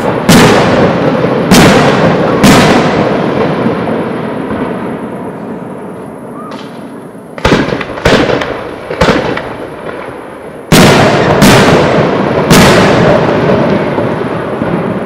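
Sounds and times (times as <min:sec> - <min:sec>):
firework shells bursting: 0:06.5 - 0:13.6.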